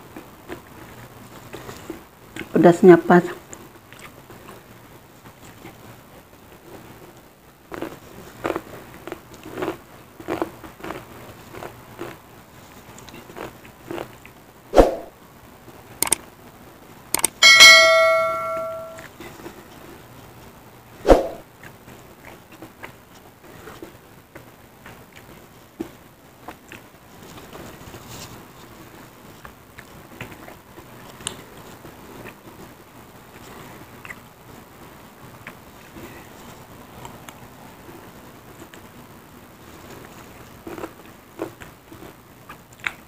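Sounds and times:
chewing: 0:03.5 - 0:04.6, 0:07.7 - 0:14.4, 0:21.6 - 0:27.4, 0:29.4 - 0:32.7, 0:33.3 - 0:34.2, 0:39.7 - 0:43.0
skewers and spoon clicking: 0:17.2 - 0:19.0
bell ding: 0:17.4 - 0:19.0.

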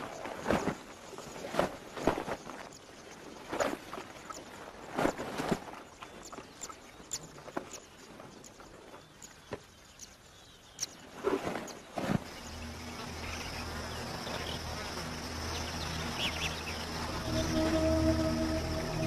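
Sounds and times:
faint insect buzz: 0:05.8 - 0:19.0
slow music with held notes: 0:12.6 - 0:19.0.

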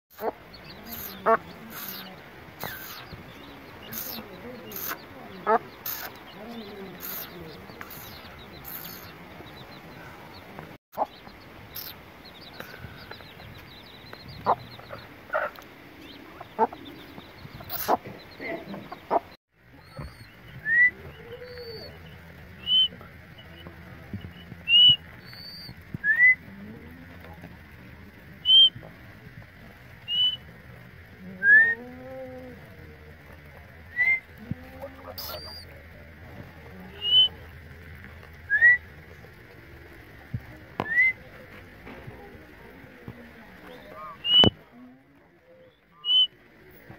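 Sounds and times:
hen clucking: 0:00.1 - 0:27.4, 0:34.2 - 0:37.6, 0:43.7 - 0:44.6
chicks peeping: 0:00.1 - 0:31.4, 0:32.0 - 0:44.6.

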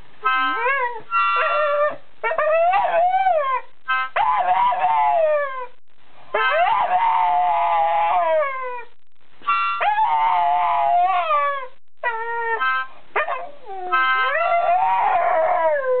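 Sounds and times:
harmonica chords: 0:00.2 - 0:01.6, 0:09.4 - 0:09.8
dog howling: 0:04.2 - 0:05.7, 0:06.4 - 0:08.9, 0:09.8 - 0:16.0.

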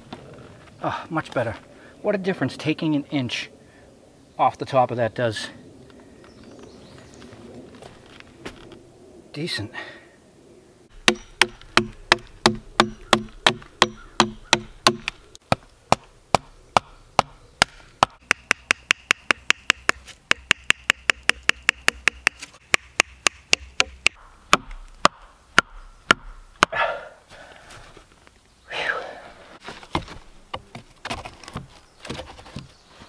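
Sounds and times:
axe hammering a wooden stake: 0:11.0 - 0:26.9.

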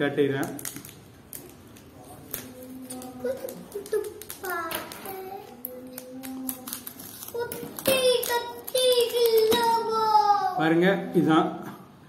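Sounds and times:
package being opened: 0:00.4 - 0:09.8.

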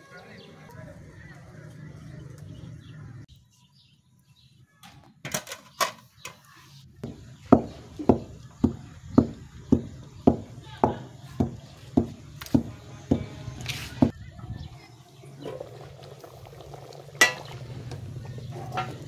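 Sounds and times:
wooden pestle pounding in mortar: 0:07.0 - 0:13.3.

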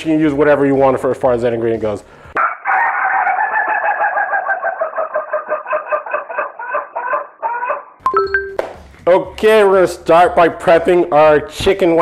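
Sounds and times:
rooster crowing: 0:02.4 - 0:08.0.

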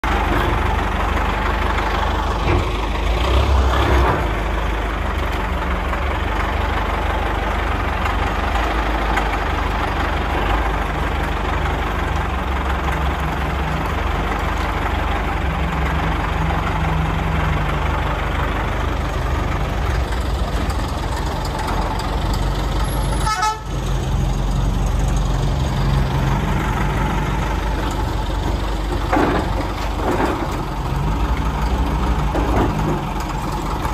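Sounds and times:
wheel loader diesel engine: 0:00.0 - 0:33.9
crumbling rubble and knocks: 0:29.0 - 0:30.8.

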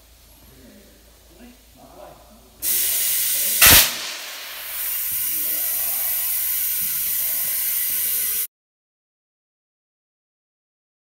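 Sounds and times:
compressed air hissing: 0:02.6 - 0:08.5
tyre bead bang: 0:03.6 - 0:05.1.

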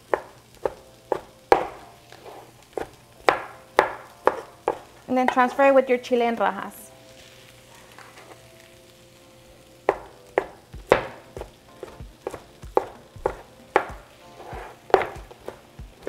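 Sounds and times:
cleaver chopping on wooden board: 0:09.9 - 0:11.2, 0:12.2 - 0:14.0, 0:14.9 - 0:15.6.

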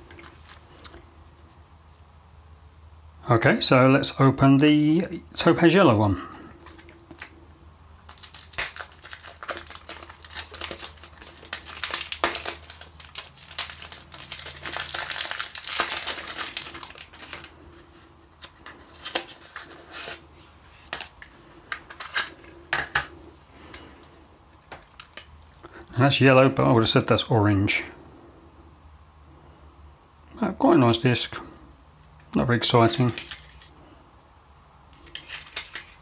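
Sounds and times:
plastic wrapper crinkling: 0:06.5 - 0:07.4, 0:08.0 - 0:23.8, 0:24.7 - 0:25.4, 0:35.0 - 0:36.0.

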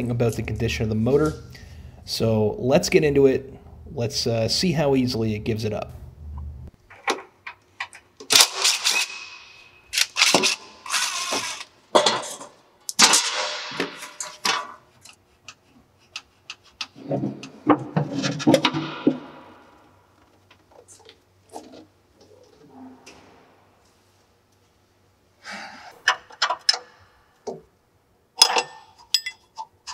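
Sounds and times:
metal covers clanking and scraping: 0:10.4 - 0:14.9.

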